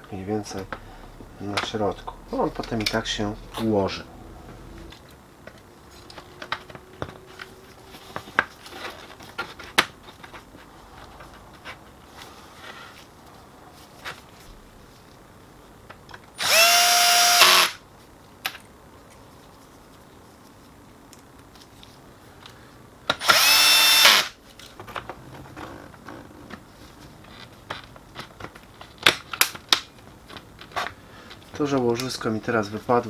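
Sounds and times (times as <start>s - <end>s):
cordless drill motor whine: 16.4s - 17.8s, 23.2s - 24.4s.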